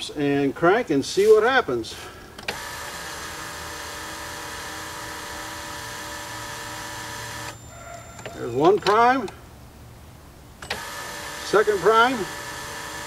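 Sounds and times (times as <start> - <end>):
electric fuel pump whine: 2.4 - 8.9, 10.6 - 13.0.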